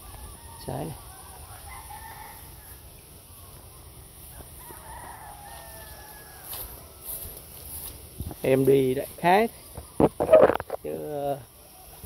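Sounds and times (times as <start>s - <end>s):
rooster crowing: 0.0s - 2.9s, 4.3s - 7.3s.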